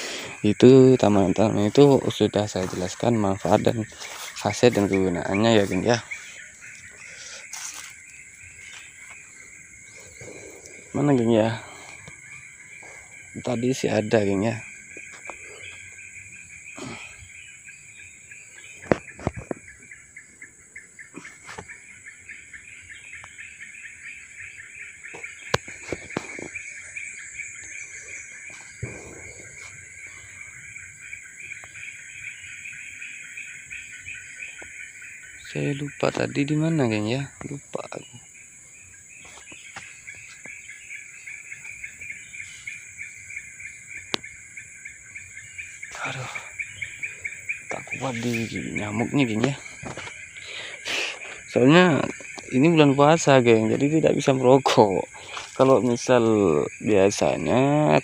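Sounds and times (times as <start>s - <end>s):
insects chirring: 0.0s - 58.0s
footsteps through undergrowth: 0.9s - 9.9s, 14.8s - 16.1s, 25.0s - 30.5s, 39.0s - 42.8s, 47.2s - 50.4s, 55.1s - 56.1s.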